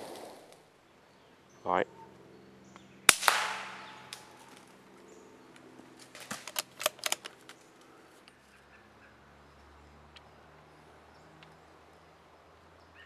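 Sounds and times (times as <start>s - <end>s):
suppressed rifle shot: 3.1s - 4.4s
sharp clicks and rattles: 6.2s - 7.6s.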